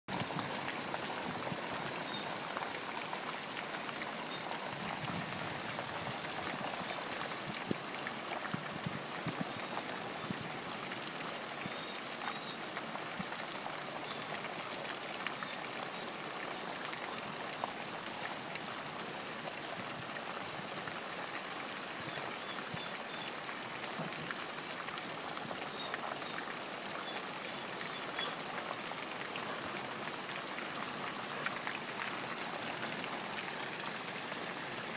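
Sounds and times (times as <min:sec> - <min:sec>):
steady rain falling: 0:00.1 - 0:34.9.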